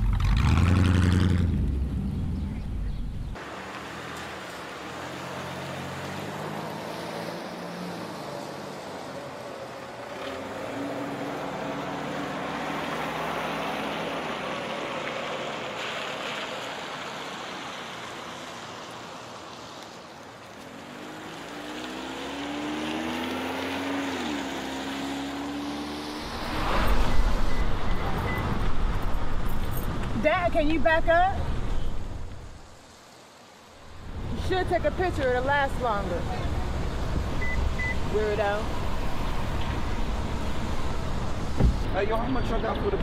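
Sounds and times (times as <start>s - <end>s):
car engine accelerating: 0.0s - 8.3s, 20.8s - 30.4s
cars passing: 0.0s - 43.0s.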